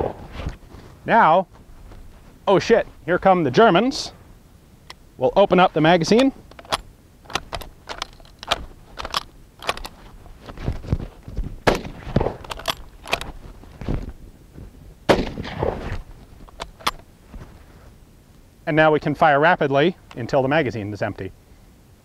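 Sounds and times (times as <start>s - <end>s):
rifle bolt clicks: 6.0s - 10.0s, 11.7s - 13.3s, 16.4s - 17.0s
rifle shots: 11.6s - 13.2s, 15.1s - 16.0s.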